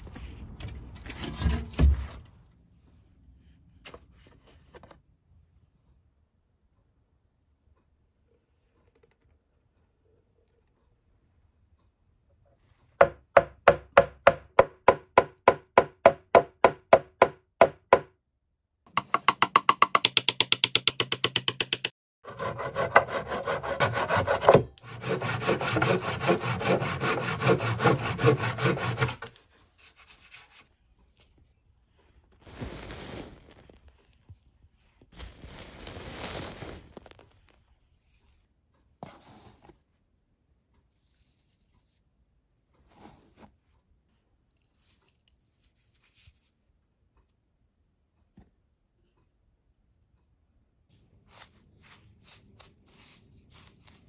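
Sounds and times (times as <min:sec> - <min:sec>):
hand tool rasping wood: 0:19.0 - 0:29.4
quiet short scrapes: 0:42.9 - 0:43.6.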